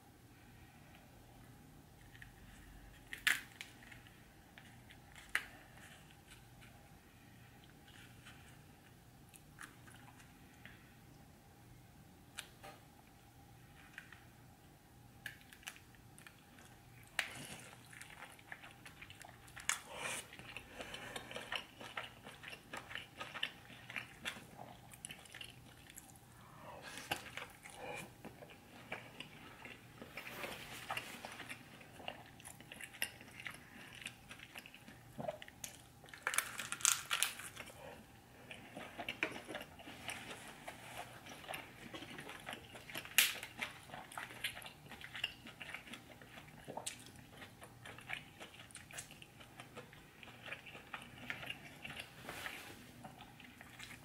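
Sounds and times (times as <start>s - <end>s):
wet chewing and biting: 15.2s - 54.0s
crunchy bites: 35.7s - 37.7s.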